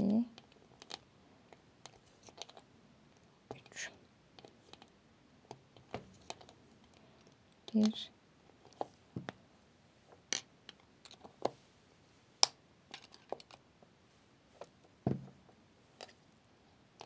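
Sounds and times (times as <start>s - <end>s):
soft knock: 15.1s - 15.4s.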